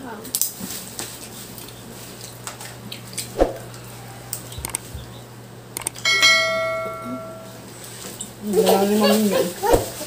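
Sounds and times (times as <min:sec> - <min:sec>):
ringing clink: 0:06.0 - 0:07.5.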